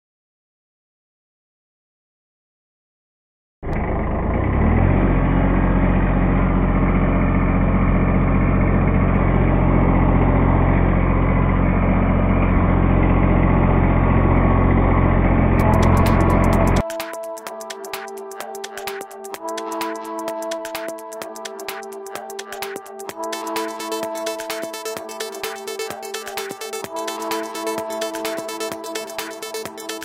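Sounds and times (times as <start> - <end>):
tractor diesel engine running: 3.7 - 16.8.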